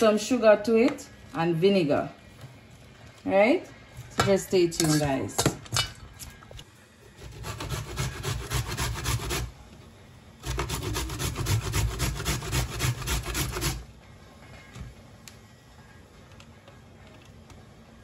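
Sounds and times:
carrot rasping on metal grater: 7.2s - 9.5s, 10.4s - 13.8s.

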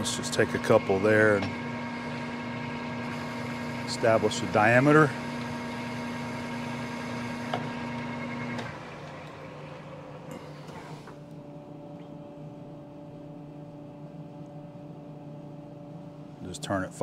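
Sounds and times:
metal lathe spindle turning: 0.0s - 9.4s.

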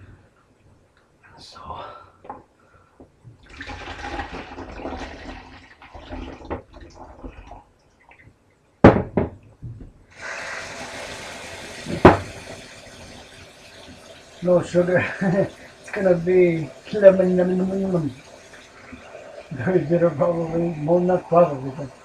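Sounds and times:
water pouring through a funnel: 3.4s - 8.2s, 10.1s - 22.0s.

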